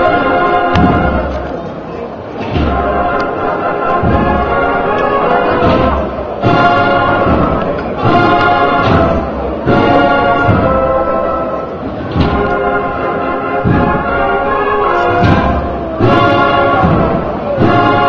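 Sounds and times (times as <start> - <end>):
brass instruments holding notes: 0.0 - 1.6, 2.4 - 18.0
heavy drum beats: 0.0 - 1.6, 2.4 - 18.0.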